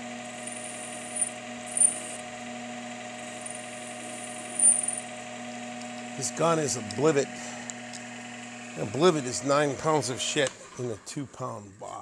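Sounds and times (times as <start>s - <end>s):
metal lathe humming: 0.0s - 11.0s
high-pitched cutting squeaks: 0.4s - 2.2s.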